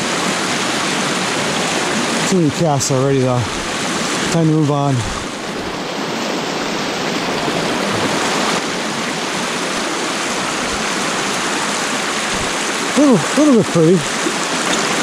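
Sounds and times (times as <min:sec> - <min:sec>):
stream water rushing: 0:00.0 - 0:15.0.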